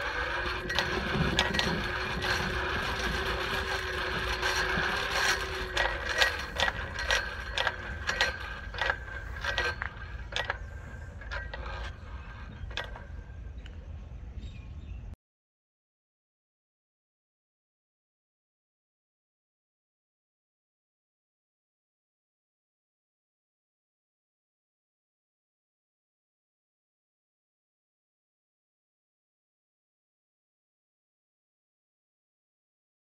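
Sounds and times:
hand-cranked forge blower whirring: 0.0 - 14.5
blower ticking while coasting: 0.0 - 14.7.

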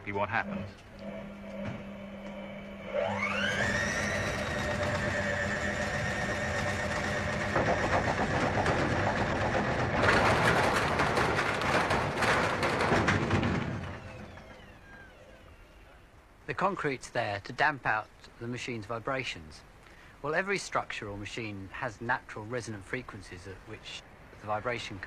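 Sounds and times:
washing machine motor whine: 0.0 - 16.2
washing machine rattling: 3.2 - 14.5.

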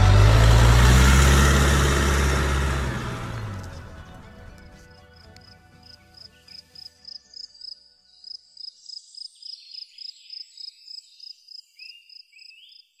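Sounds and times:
background music: 0.0 - 9.1
insect chirping: 5.8 - 12.9.

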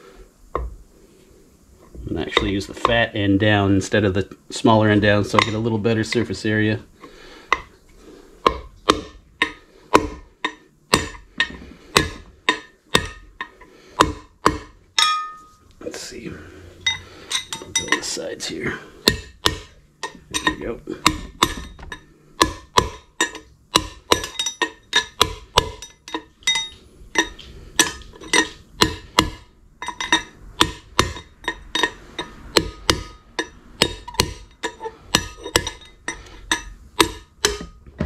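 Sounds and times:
hammer striking steel: 8.5 - 13.3, 14.0 - 15.6, 19.0 - 37.8.

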